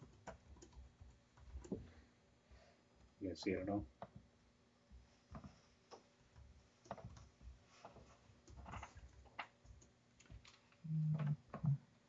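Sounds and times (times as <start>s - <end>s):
typing on laptop keyboard: 0.0s - 1.8s, 5.4s - 10.8s.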